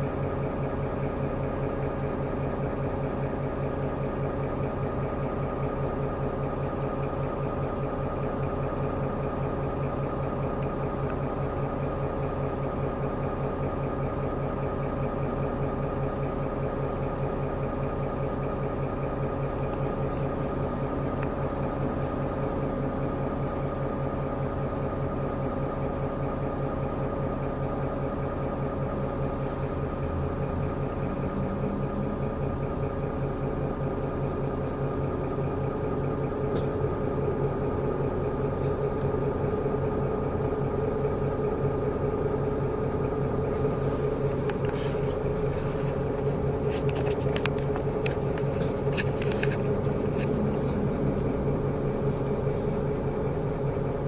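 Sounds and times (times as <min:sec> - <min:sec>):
bus engine humming: 0:00.0 - 0:54.0
rattles and clicks: 0:43.6 - 0:53.0.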